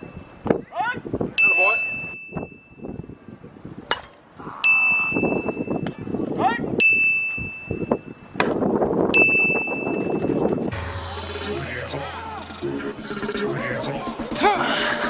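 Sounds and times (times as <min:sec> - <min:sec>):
chatter of voices: 0:10.8 - 0:15.0.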